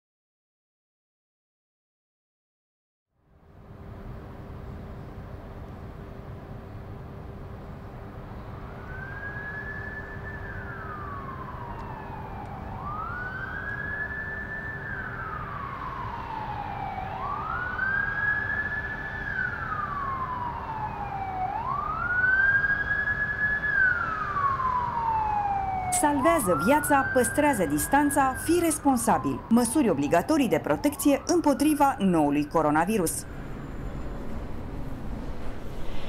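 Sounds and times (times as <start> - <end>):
emergency vehicle siren wailing: 8.2 - 36.0
steady low hum: 32.1 - 36.0.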